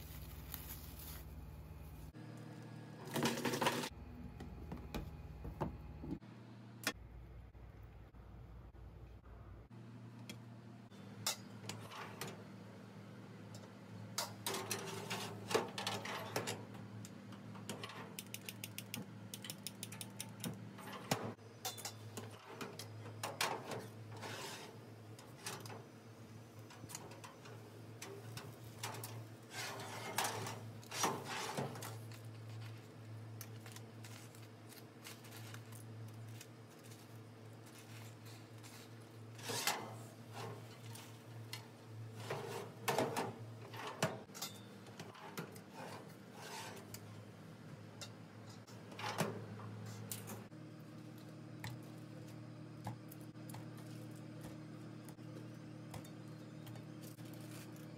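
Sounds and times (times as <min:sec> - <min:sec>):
steady low hum: 0:00.0 - 0:11.6, 0:45.9 - 0:57.9
metal oven door and racks clattering: 0:14.2 - 0:16.7, 0:20.4 - 0:25.9, 0:26.8 - 0:32.2, 0:42.1 - 0:46.9, 0:48.6 - 0:50.5.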